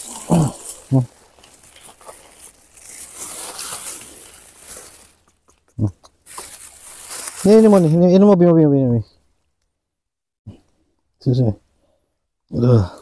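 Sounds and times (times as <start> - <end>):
rustling and crinkling: 0.0 - 8.1.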